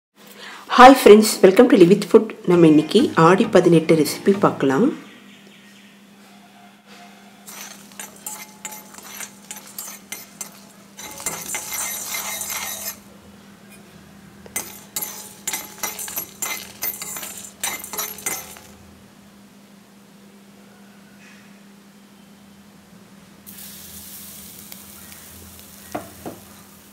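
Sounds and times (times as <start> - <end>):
metal spatula scraping steel pan: 7.4 - 13.1, 14.5 - 18.8
lentils rattling: 7.5 - 13.0, 14.6 - 18.8.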